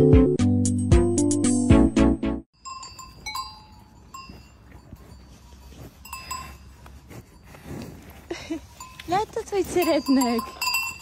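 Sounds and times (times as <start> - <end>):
cowbells clanking: 2.6 - 11.0.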